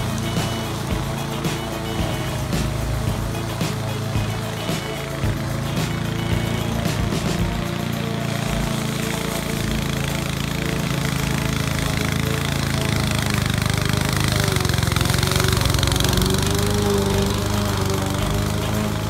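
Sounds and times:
lawn mower engine running: 0.0 - 19.0.

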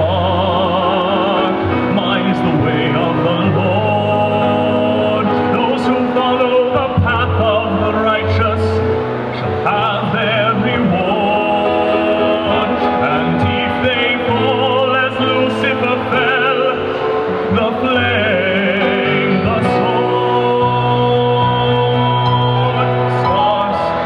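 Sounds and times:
man singing a ballad: 0.0 - 24.0
piano: 0.0 - 24.0.

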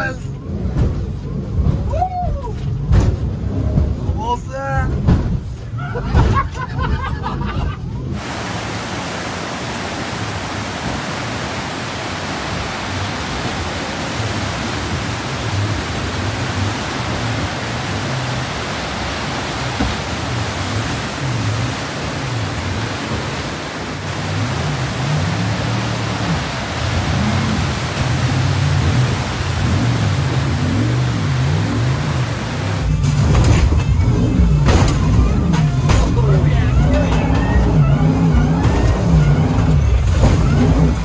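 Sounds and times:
boat engine droning: 0.0 - 41.0
whitewater rapids roaring: 8.0 - 33.4, 34.0 - 41.0.

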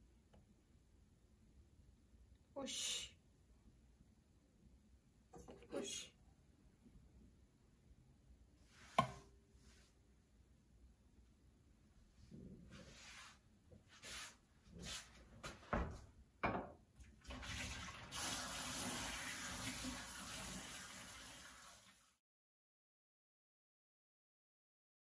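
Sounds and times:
water running from a tap: 17.0 - 22.2.

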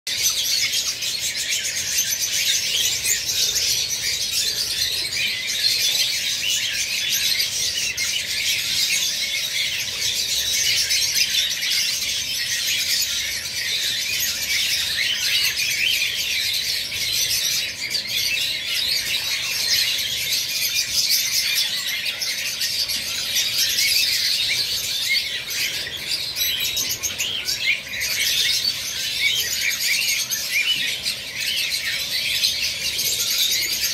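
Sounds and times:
birds chattering: 0.1 - 33.9.

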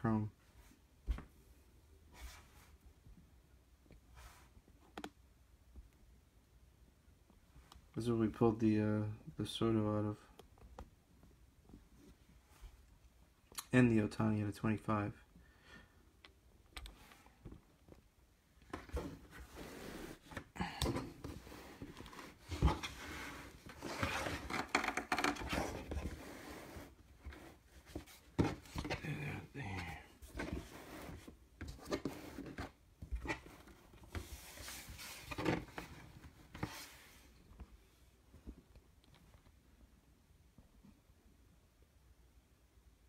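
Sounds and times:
mat sliding on table: 19.0 - 20.5, 25.5 - 29.0, 30.3 - 31.3.

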